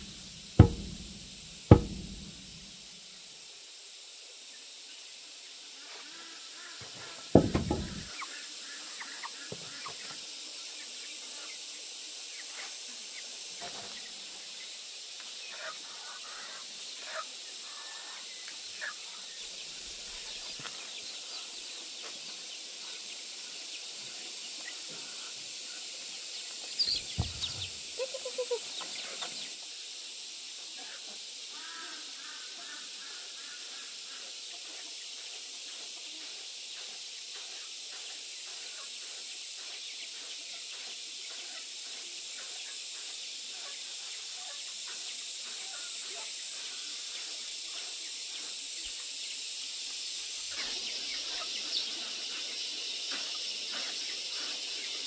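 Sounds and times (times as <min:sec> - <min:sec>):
steady high hiss: 0:00.0 - 0:55.0
chickens clucking: 0:26.8 - 0:29.5.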